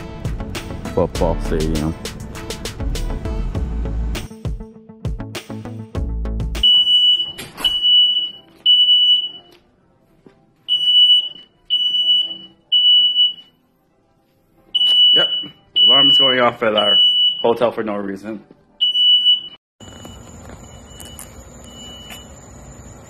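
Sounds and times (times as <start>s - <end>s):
smoke alarm beeping: 6.6s - 9.5s, 10.7s - 13.5s, 14.8s - 17.7s, 18.8s - 22.5s
music jingle: 10.7s - 13.8s, 14.7s - 19.0s.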